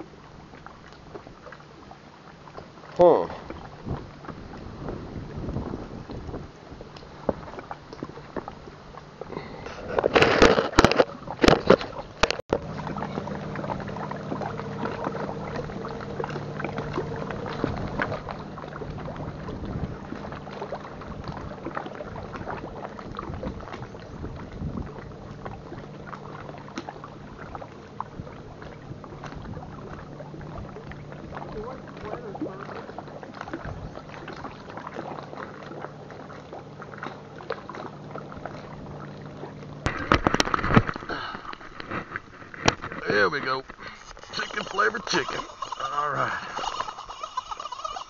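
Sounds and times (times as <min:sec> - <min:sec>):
distant motorboat engine drone: 0:00.0 - 0:48.0
lapping water: 0:00.0 - 0:48.0
wind: 0:00.0 - 0:48.0
camera handling knocks and rustles: 0:09.9 - 0:12.4, 0:39.9 - 0:41.0.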